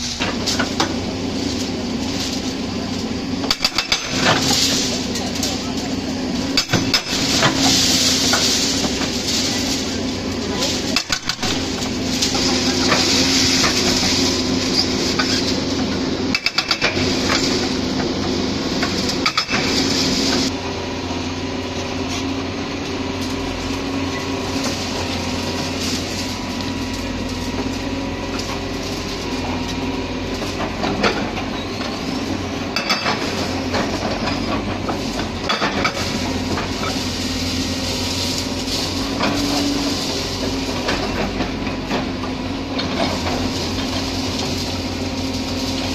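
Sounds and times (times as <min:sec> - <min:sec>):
excavator diesel engines running: 0:00.0 - 0:45.9
concrete rubble clattering: 0:03.5 - 0:05.7, 0:06.6 - 0:09.9, 0:10.7 - 0:14.0, 0:16.4 - 0:17.5, 0:19.2 - 0:19.7, 0:32.7 - 0:39.7.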